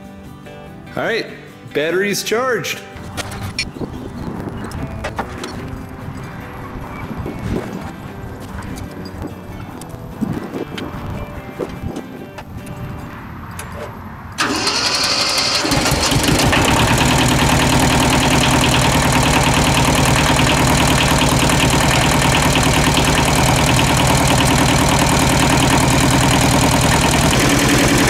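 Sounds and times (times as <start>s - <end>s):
diesel engine idling: 14.4s - 28.0s
starter motor cranking: 14.4s - 28.0s.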